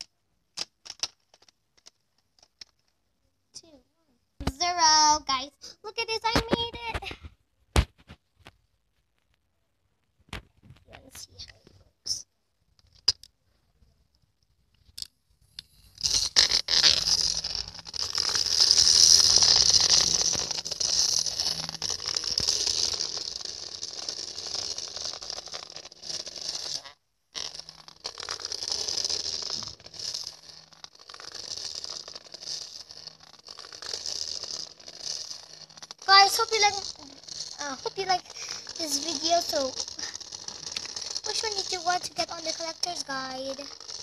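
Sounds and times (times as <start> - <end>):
toy rattling and whirring on track: 0.0 - 2.9, 14.8 - 44.0.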